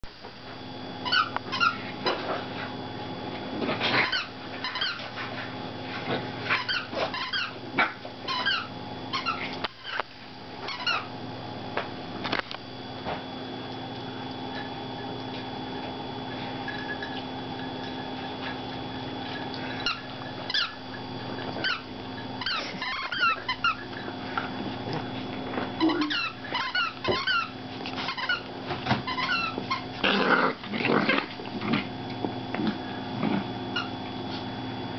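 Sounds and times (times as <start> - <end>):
puppies squealing and yipping: 1.0 - 1.9, 3.9 - 5.1, 6.4 - 7.6, 8.2 - 10.0, 10.6 - 11.1, 19.3 - 24.3, 25.8 - 30.0, 33.7 - 34.0.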